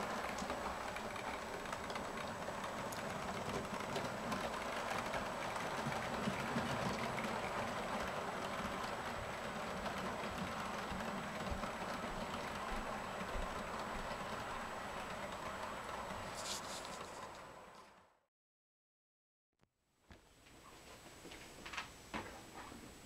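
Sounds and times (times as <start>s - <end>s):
model train wheels rumbling on rails: 0.0s - 18.1s.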